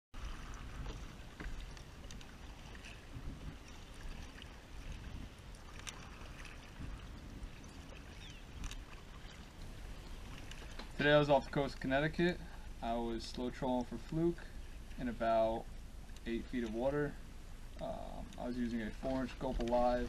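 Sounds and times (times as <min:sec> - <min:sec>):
wind rumble on microphone: 0:00.2 - 0:11.0
paddle splashing water: 0:00.2 - 0:20.0.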